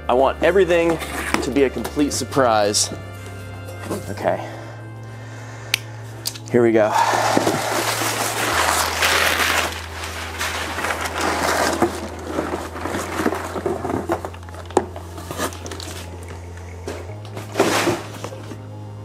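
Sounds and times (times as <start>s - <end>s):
packing paper rustling: 7.0s - 16.3s.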